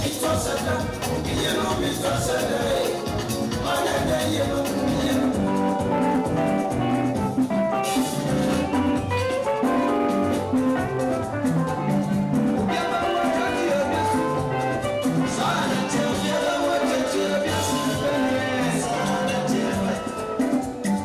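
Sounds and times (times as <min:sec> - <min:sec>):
steady drum beat: 0:00.0 - 0:09.3
upbeat band music: 0:00.0 - 0:21.0.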